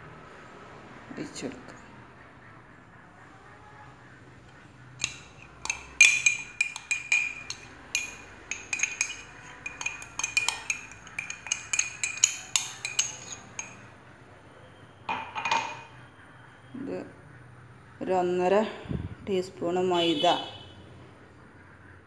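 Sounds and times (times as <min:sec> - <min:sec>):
metal spoon clinking in glass jar: 0:05.0 - 0:13.9, 0:15.1 - 0:16.0.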